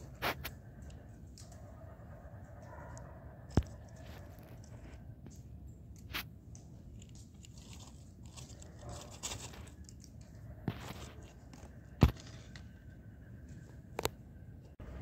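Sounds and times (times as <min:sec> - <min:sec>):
dry leaves rustling and crunching: 0:06.9 - 0:12.6.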